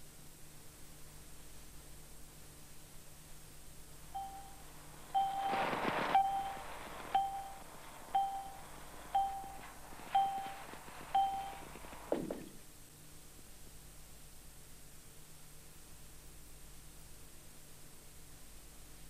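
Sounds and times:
countdown beeps: 0:04.2 - 0:04.6, 0:05.2 - 0:05.6, 0:06.2 - 0:07.6, 0:08.2 - 0:11.7
burst of hiss: 0:04.9 - 0:12.1.

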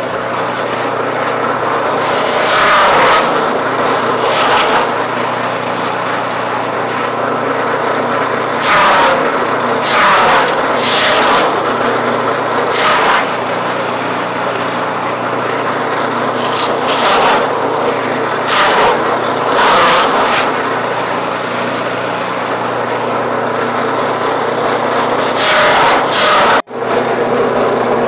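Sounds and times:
forage being shredded: 0:00.0 - 0:28.0
forage chopper running: 0:00.0 - 0:28.0.

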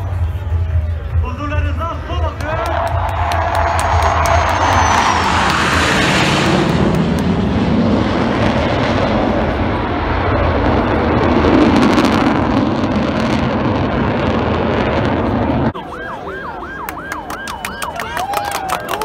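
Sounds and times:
fighter jet engine roar: 0:00.0 - 0:17.6
siren-like warbling tone: 0:15.4 - 0:18.0.

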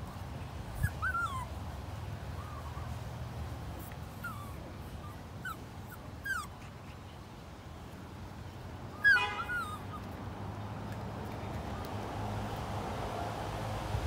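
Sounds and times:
puppies whimpering and yelping: 0:00.7 - 0:01.6, 0:02.3 - 0:03.0, 0:03.9 - 0:07.0, 0:09.0 - 0:10.1.

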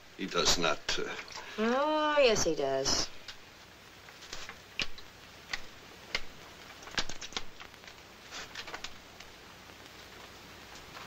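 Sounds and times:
wet prints clicking and tapping: 0:04.2 - 0:09.3.

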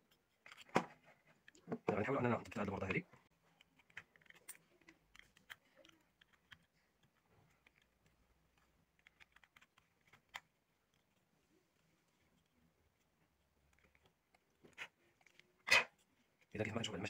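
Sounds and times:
small plastic parts clicking: 0:00.1 - 0:11.3, 0:12.2 - 0:16.5.

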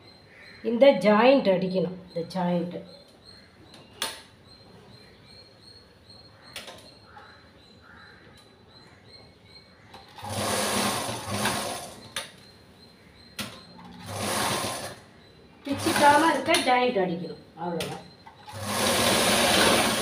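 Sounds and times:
sewing machine stitching: 0:10.1 - 0:12.1, 0:13.8 - 0:15.0, 0:15.7 - 0:16.6, 0:18.4 - 0:20.0.

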